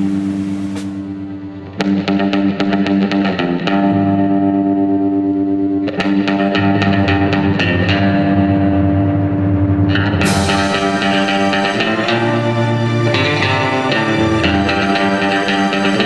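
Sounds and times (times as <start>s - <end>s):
bass line: 0.0s - 1.8s, 6.6s - 14.9s
distorted electric guitar music: 0.0s - 16.0s.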